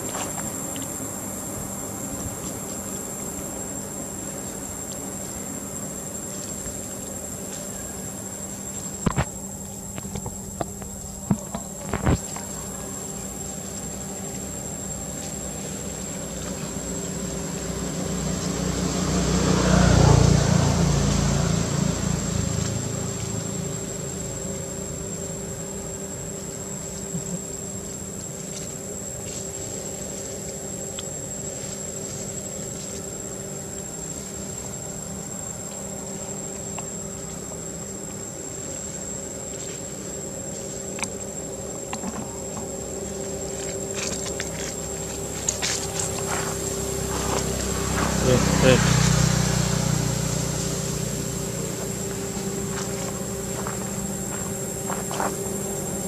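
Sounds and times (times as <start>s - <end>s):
high-pitched insect buzz: 0.0s - 56.0s
motor vehicle passing by: 15.6s - 25.0s, 43.6s - 56.0s.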